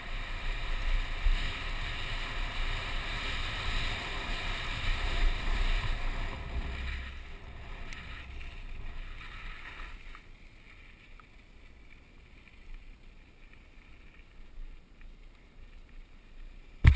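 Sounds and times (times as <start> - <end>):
wind over microphone: 0.0 - 10.0
bike tyres rumbling: 0.0 - 16.9.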